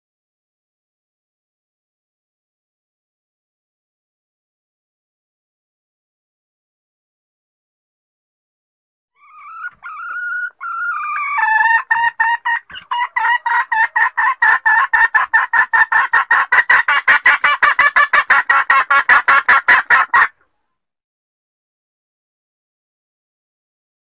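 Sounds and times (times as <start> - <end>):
junglefowl hen calling: 9.2 - 20.5.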